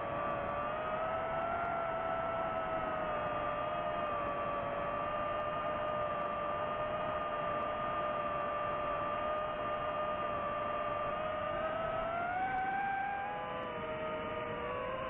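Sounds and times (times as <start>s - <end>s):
drone motors and propellers whining: 0.0s - 15.0s.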